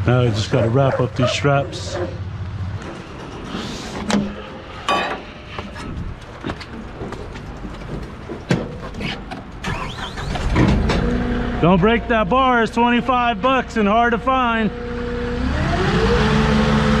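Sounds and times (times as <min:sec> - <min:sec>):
forklift engine running: 0:00.0 - 0:17.0
metal knocks and clanks: 0:01.8 - 0:09.6.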